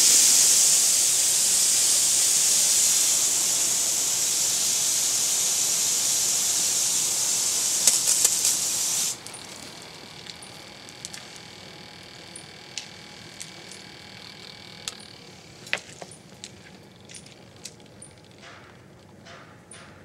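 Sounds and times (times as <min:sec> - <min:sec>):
small electric motor whine: 0:00.0 - 0:18.2
sharp ticks: 0:01.8 - 0:09.4.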